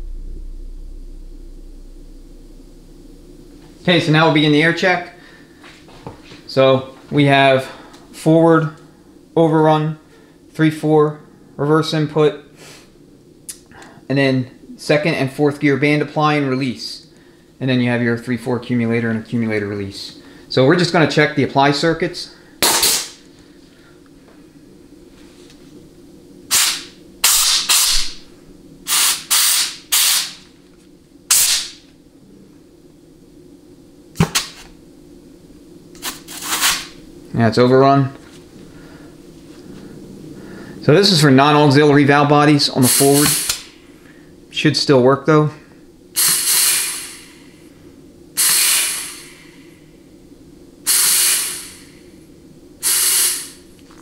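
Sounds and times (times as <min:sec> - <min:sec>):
compressed air hissing: 0:26.5 - 0:28.2, 0:28.9 - 0:30.5, 0:31.3 - 0:31.8, 0:36.0 - 0:37.0, 0:42.8 - 0:44.2, 0:46.2 - 0:50.1, 0:50.8 - 0:53.8.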